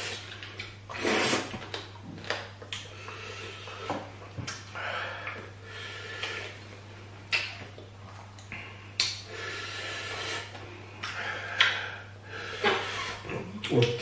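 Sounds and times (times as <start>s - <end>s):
sharp breaths and sniffs: 9.3s - 13.3s.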